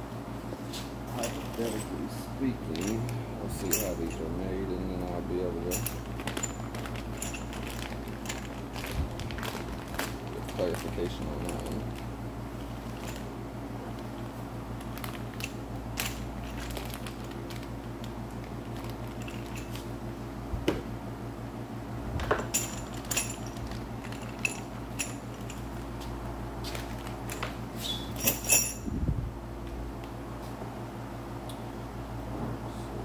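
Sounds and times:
steady low hum: 0:00.0 - 0:33.0
steel parts clinking on workbench: 0:02.7 - 0:04.3, 0:05.6 - 0:08.5, 0:22.3 - 0:25.7, 0:28.2 - 0:28.9.

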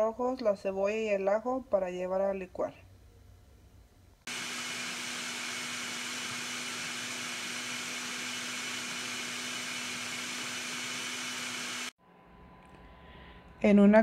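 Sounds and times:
blender motor whirring: 0:04.3 - 0:12.0.

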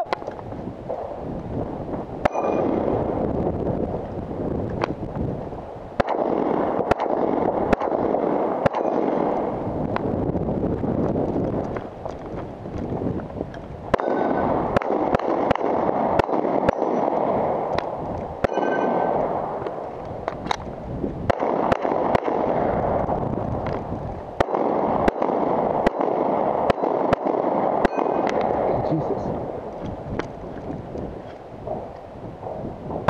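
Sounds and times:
steady rushing noise: 0:00.0 - 0:33.0
gunshots: 0:02.2 - 0:03.7, 0:06.0 - 0:10.4, 0:13.9 - 0:20.6, 0:21.2 - 0:33.0.

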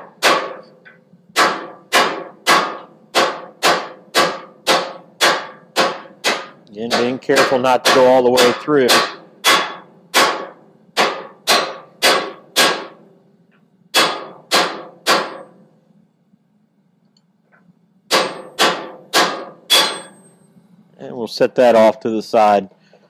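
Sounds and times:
forge low hum: 0:00.0 - 0:23.0
hammer ringing on hot steel: 0:00.2 - 0:13.0, 0:13.9 - 0:15.6, 0:18.1 - 0:20.4.

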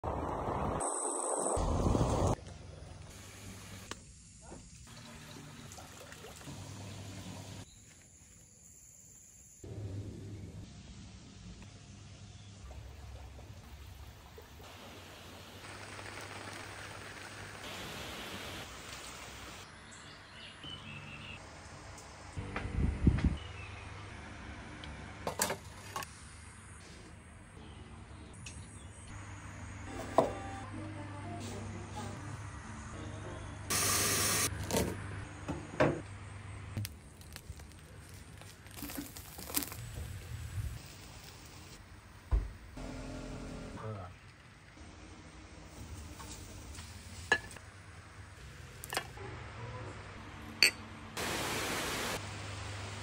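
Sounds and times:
outdoor ambient hiss: 0:00.2 - 0:53.0
hiss: 0:14.6 - 0:19.6, 0:51.2 - 0:52.2.

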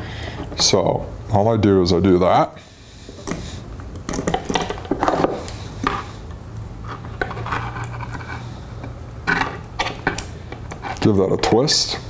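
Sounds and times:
wire clinking and scraping: 0:06.8 - 0:08.5.

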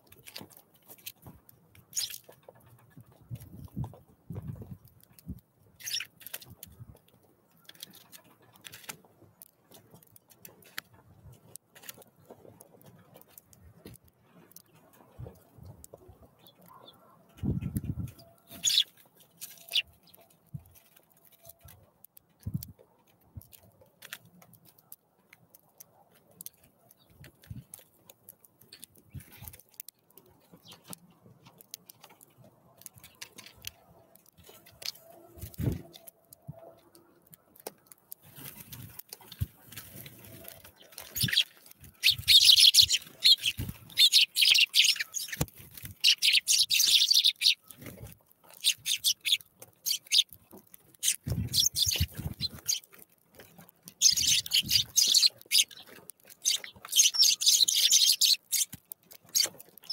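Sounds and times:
birds pecking on a feeder: 0:00.0 - 0:59.9.

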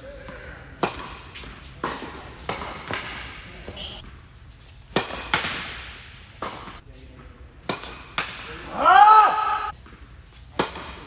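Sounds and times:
tennis balls struck and bouncing: 0:00.2 - 0:06.8, 0:07.6 - 0:08.8, 0:09.7 - 0:11.0.

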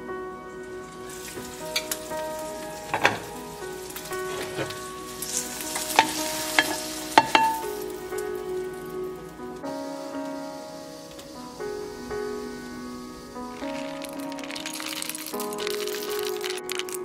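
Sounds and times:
soft music: 0:00.0 - 0:17.0
eggs sizzling in a frying pan: 0:01.0 - 0:17.0
spatula scraping a pan: 0:04.3 - 0:07.6.

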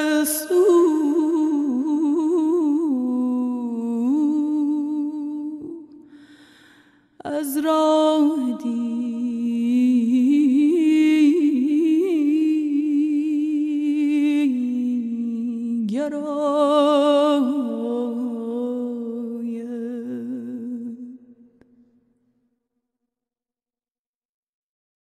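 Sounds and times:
singer breathing in: 0:06.0 - 0:07.2.

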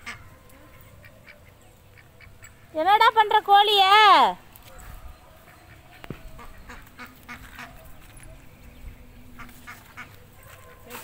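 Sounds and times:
ducks quacking: 0:00.0 - 0:02.8, 0:05.3 - 0:08.0, 0:09.3 - 0:11.0.

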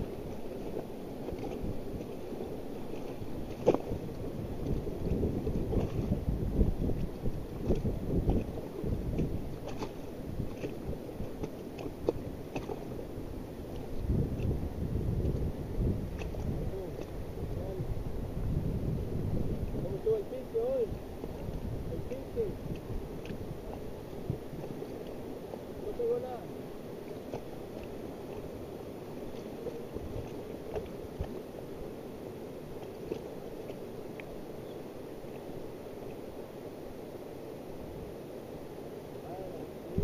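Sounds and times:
wind buffeting microphone: 0:00.0 - 0:26.4
river water rushing against raft: 0:00.0 - 0:40.0.

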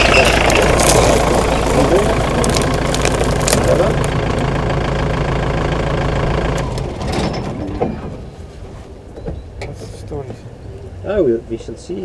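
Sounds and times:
engine idling: 0:00.0 - 0:08.4.

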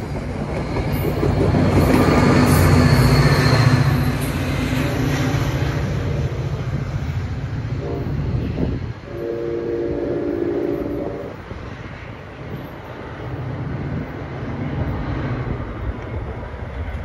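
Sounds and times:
diesel locomotive engine rumble: 0:00.0 - 0:17.0
locomotive horn blasts: 0:07.8 - 0:11.4.

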